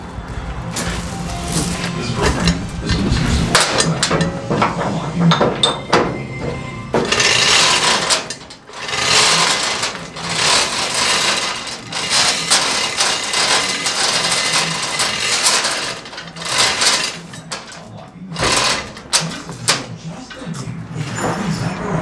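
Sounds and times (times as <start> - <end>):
hoist chain rattling: 2.3 - 6.2, 7.0 - 21.3.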